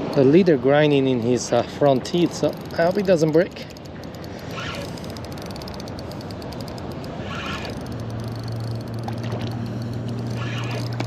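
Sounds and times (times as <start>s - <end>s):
fishing leader rapid ticking: 0.0s - 11.0s
wind: 0.0s - 11.0s.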